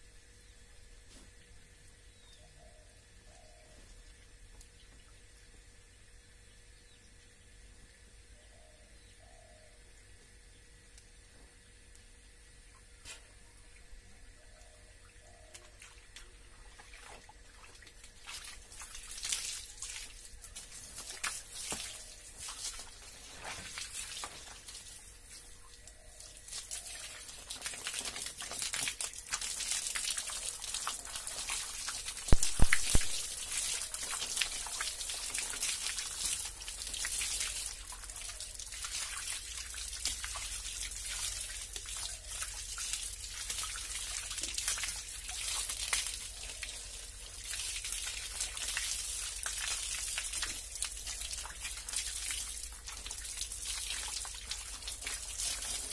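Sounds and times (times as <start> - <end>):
hose water splashing on concrete: 15.8 - 55.9.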